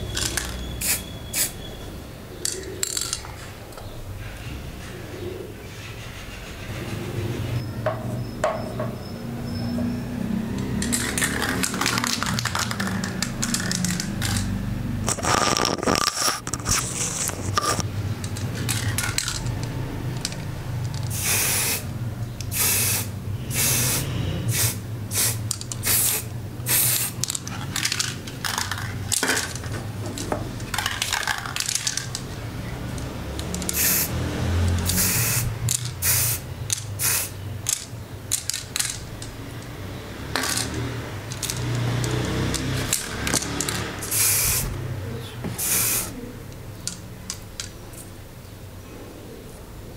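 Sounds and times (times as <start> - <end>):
spray paint hissing bursts: 0.2 - 1.6, 21.1 - 21.9, 22.5 - 27.4, 33.6 - 37.9, 42.8 - 44.8, 45.5 - 46.2.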